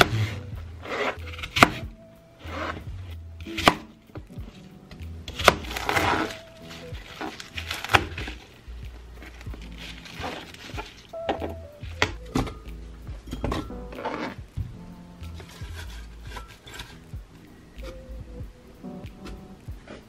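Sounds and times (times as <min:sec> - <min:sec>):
knife slicing apple: 0:00.0 - 0:03.9, 0:05.2 - 0:08.5
leafy crunching: 0:05.4 - 0:11.1.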